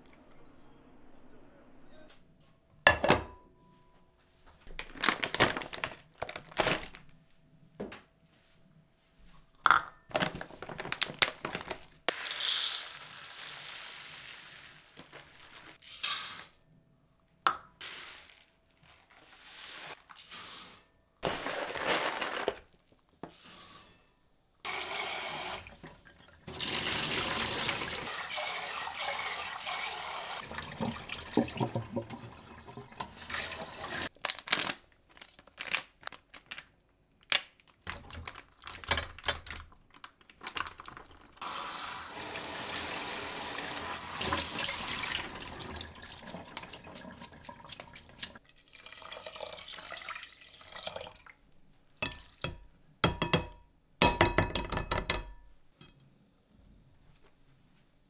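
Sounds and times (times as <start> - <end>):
rice grains poured into pot: 12.1 - 16.5
tap water running into pot: 24.7 - 34.1, 40.8 - 51.3
pot and bags knocking on counter: 30.6 - 32.3, 52.5 - 55.4.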